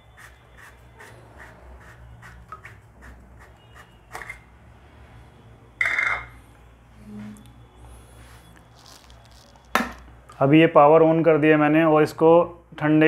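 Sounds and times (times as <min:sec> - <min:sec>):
short rasp: 0:00.0 - 0:04.2.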